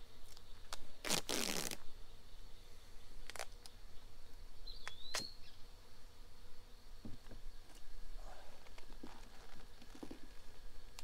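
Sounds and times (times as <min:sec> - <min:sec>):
tape ripped off roll: 0:00.7 - 0:01.8.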